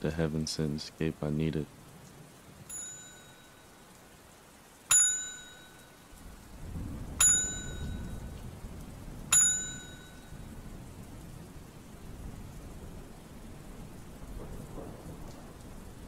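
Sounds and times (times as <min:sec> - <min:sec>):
rain hissing: 0:00.0 - 0:16.0
bright metallic bell ding: 0:02.7 - 0:03.6, 0:04.9 - 0:05.9, 0:07.2 - 0:08.2, 0:09.3 - 0:10.3.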